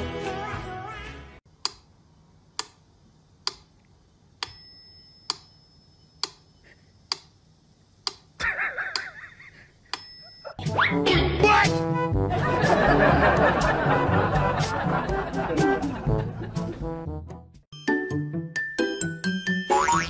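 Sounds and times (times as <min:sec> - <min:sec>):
regular ticking: 0:02.5 - 0:09.2.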